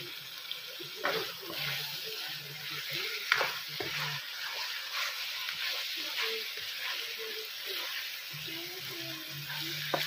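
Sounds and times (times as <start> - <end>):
chicken and onion sizzling: 0.0 - 10.0
spatula stirring in pan: 0.0 - 10.0
spatula knocking on pan: 9.8 - 10.0.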